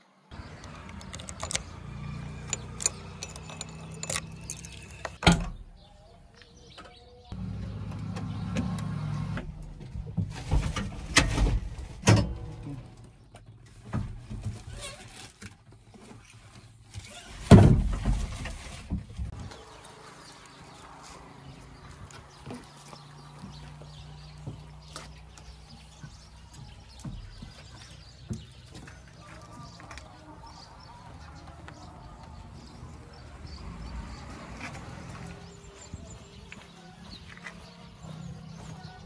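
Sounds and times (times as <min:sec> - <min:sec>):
knocks clunks and rattles in cab: 0:17.4 - 0:19.4.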